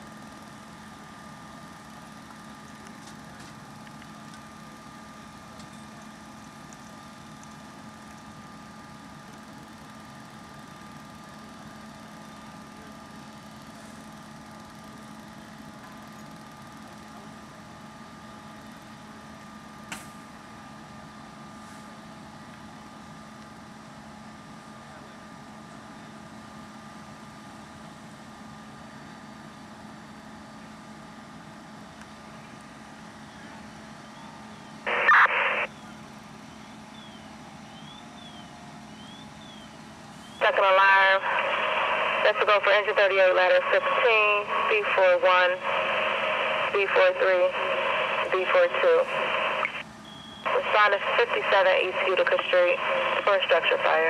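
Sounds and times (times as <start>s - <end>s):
faint steady whine: 0.0s - 54.0s
fire truck engine running: 0.0s - 54.0s
two-way radio static burst: 34.9s - 35.7s, 40.4s - 49.8s, 50.5s - 54.0s.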